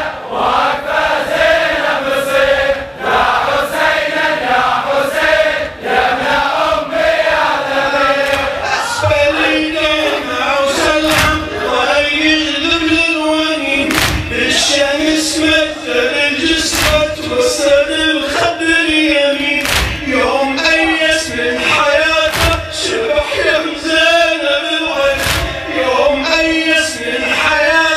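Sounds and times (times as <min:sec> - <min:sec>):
men chanting a lament: 0:00.0 - 0:27.9
chest-beating slaps: 0:11.0 - 0:11.4, 0:13.9 - 0:14.3, 0:16.7 - 0:17.1, 0:19.6 - 0:20.1, 0:22.3 - 0:22.6, 0:25.2 - 0:25.6.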